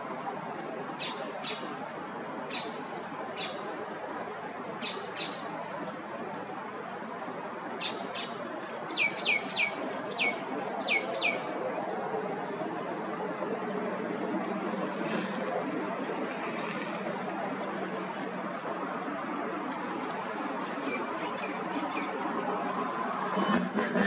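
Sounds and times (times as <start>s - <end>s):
small waves washing on beach: 0.0s - 23.3s
bird chirps: 7.8s - 11.4s.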